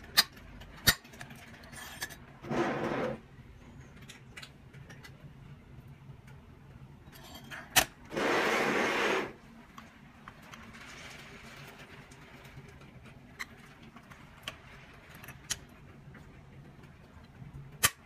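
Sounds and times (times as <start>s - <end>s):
model rubbing on table: 2.4s - 3.2s, 8.1s - 9.4s.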